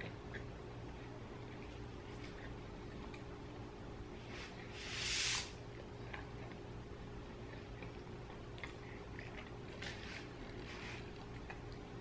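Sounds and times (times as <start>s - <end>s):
person chewing bread: 5.7s - 12.0s.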